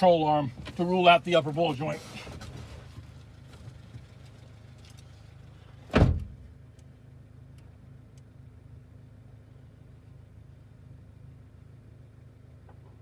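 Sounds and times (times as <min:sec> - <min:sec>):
car engine idling: 0:00.0 - 0:13.0
loud short thump: 0:05.9 - 0:06.4.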